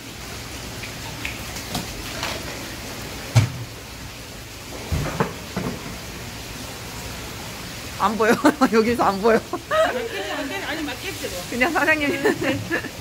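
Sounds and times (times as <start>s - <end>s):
water splashing and dripping: 0.0s - 13.0s.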